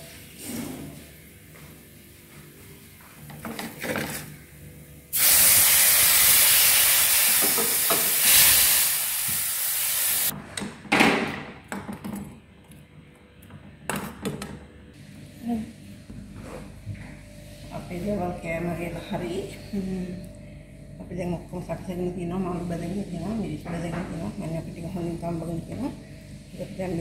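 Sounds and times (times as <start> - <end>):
fish sizzling in hot oil: 5.2 - 10.3.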